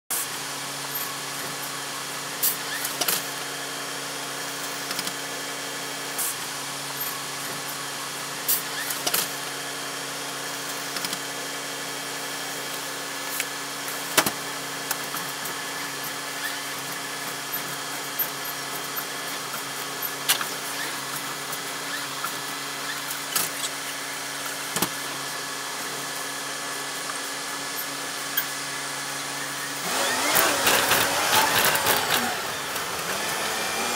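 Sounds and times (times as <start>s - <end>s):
sharp clicks and rattles: 29.8s - 33.2s
bus engine humming: 29.8s - 33.9s.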